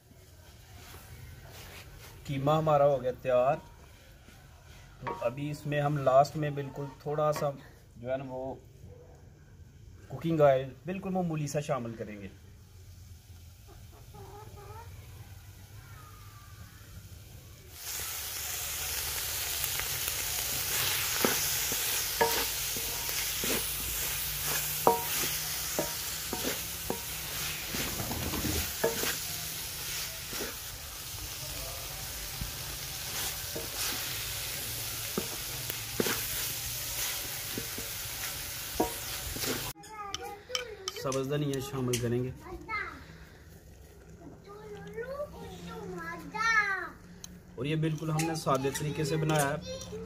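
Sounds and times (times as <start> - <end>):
wooden spoon scraping a pan: 4.4 - 5.4, 20.2 - 30.7, 32.3 - 42.0
meat sizzling in a pan: 11.3 - 39.8
spoon knocking against pan: 24.8 - 27.3.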